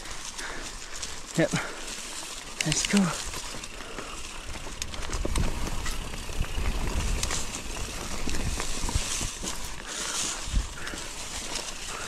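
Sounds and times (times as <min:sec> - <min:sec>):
bike rattling over bumps: 0:00.0 - 0:12.0
bike tyres on loose ground: 0:00.0 - 0:12.0
wind on microphone: 0:04.9 - 0:09.8.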